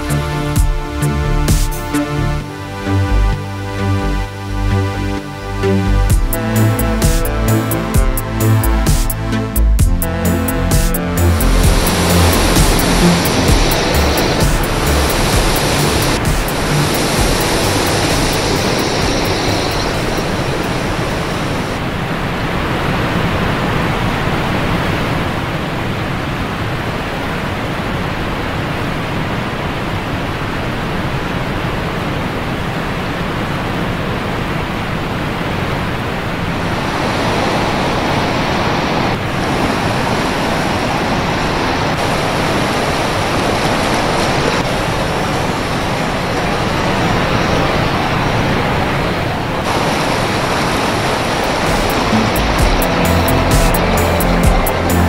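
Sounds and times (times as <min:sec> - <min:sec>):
river rushing white water: 0:10.4 - 0:55.0.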